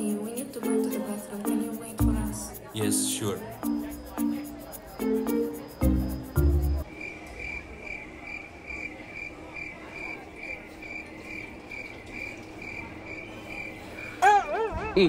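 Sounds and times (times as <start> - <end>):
background music: 0.0 - 6.8
cricket chirping: 0.0 - 14.8.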